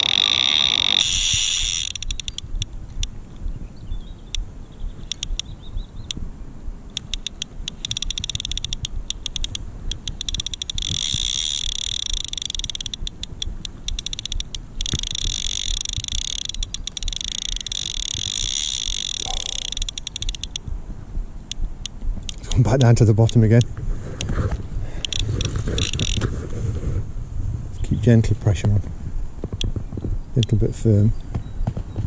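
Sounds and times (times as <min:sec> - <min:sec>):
fishing reel clicking and buzzing: 0:00.0 - 0:03.2, 0:05.0 - 0:05.5, 0:06.9 - 0:20.6, 0:25.0 - 0:26.2.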